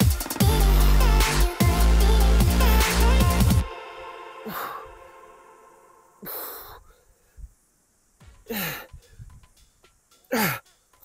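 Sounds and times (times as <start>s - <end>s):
man groaning sighs: 4.4s - 5.1s, 6.2s - 7.1s, 8.5s - 9.1s, 10.3s - 10.6s
man exhaling sharply: 6.2s - 7.1s, 8.5s - 9.3s.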